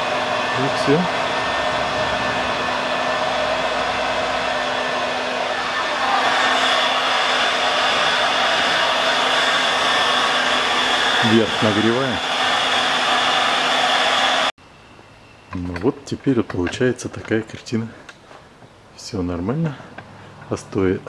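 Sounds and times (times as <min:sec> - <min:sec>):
heat gun blowing air: 0:00.0 - 0:14.5.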